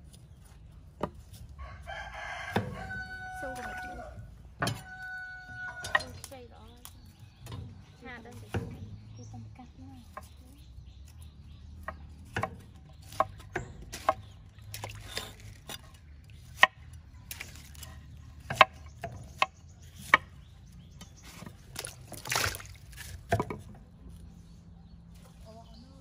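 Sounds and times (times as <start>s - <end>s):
watery splashing: 11.1s - 24.2s.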